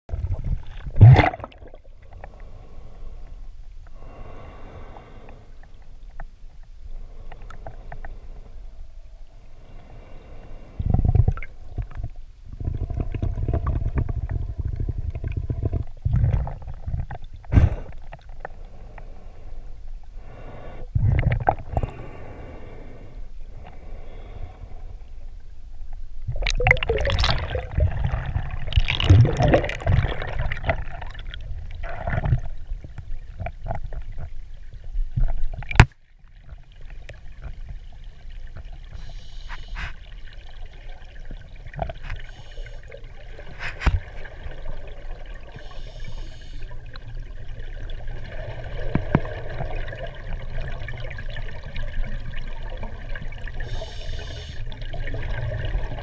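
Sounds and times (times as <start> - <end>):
muffled underwater water rushing: 0.1 - 56.0.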